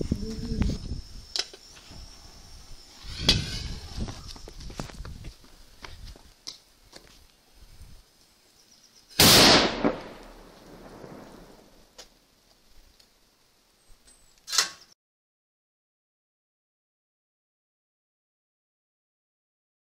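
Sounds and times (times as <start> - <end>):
firecracker bang with echoing rumble: 9.2 - 11.8
short sharp crack: 14.4 - 14.9.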